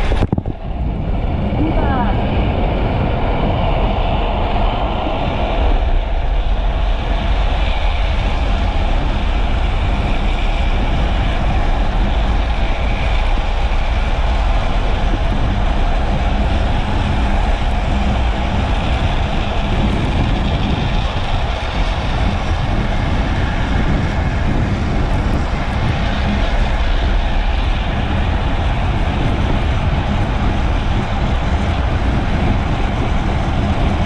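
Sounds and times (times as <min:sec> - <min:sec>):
plastic wheels rumbling on asphalt: 0:00.0 - 0:34.0
wind rushing over camera: 0:00.0 - 0:34.0.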